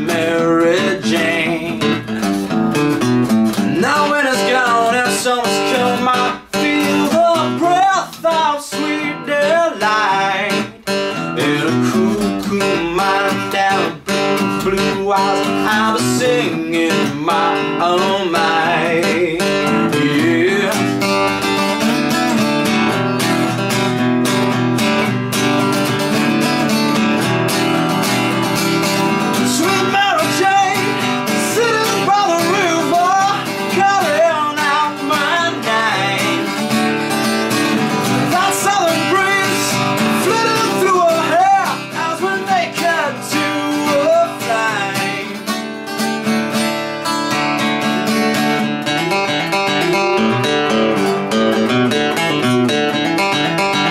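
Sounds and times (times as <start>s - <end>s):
man singing wordless melody: 0.0s - 2.3s, 3.6s - 21.2s, 28.8s - 45.6s
acoustic guitar: 0.0s - 53.9s.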